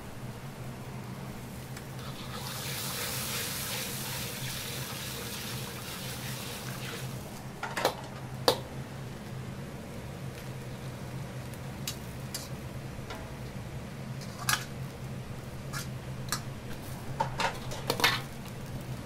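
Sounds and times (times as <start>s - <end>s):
wok range humming: 0.0s - 19.0s
watery hiss of stirred sauce: 2.0s - 7.4s.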